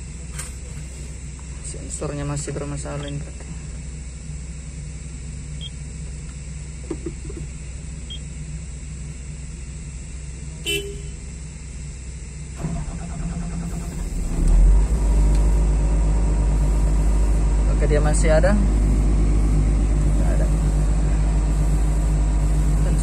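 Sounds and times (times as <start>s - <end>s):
excavator diesel engine idling: 0.0s - 23.0s
short beep: 10.7s - 11.2s.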